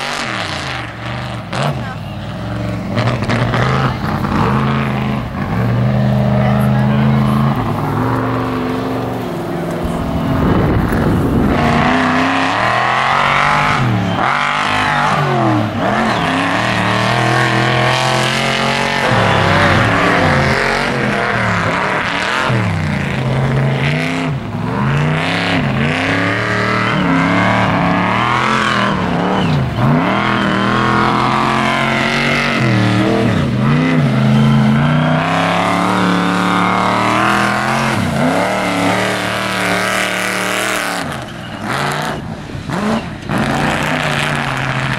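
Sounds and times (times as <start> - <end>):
tires spinning in dirt: 0.0 - 44.9
truck engine revving hard: 0.0 - 44.9.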